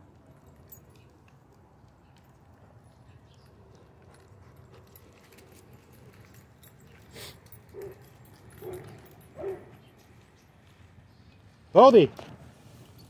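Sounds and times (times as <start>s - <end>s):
dog barking: 8.6s - 9.7s.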